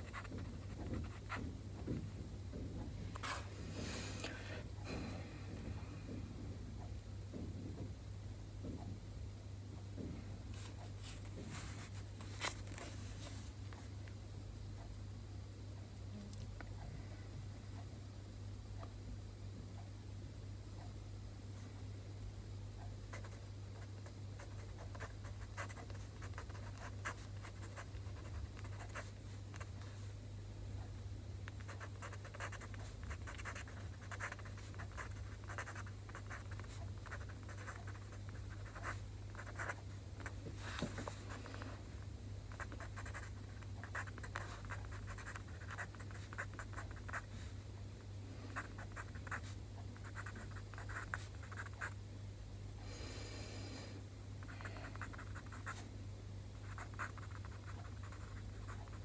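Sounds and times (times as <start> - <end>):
pen scratching on paper: 0.0 - 1.4, 24.4 - 29.1, 31.6 - 39.8, 42.5 - 47.3, 48.5 - 51.9, 54.9 - 55.8, 56.6 - 59.0
steady low hum: 0.0 - 59.0.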